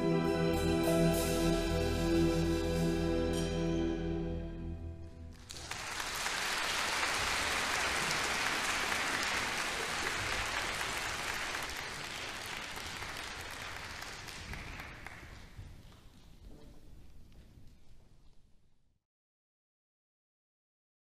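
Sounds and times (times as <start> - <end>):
audience applauding: 5.3 - 15.6.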